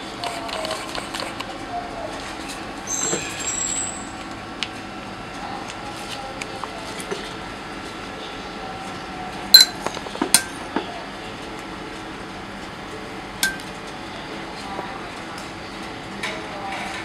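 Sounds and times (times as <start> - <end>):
steady background hum: 0.0 - 17.0
metal spoon clinking containers: 9.6 - 10.6, 13.4 - 13.7.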